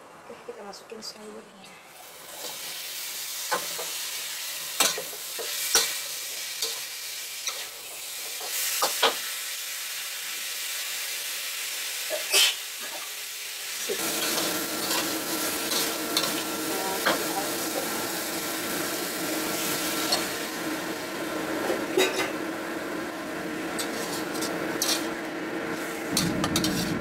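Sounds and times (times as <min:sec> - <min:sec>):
vegetables sizzling in hot oil: 0:01.9 - 0:27.0
metal spatula scraping a wok: 0:23.8 - 0:25.2, 0:25.8 - 0:27.0
steady hum: 0:24.4 - 0:27.0.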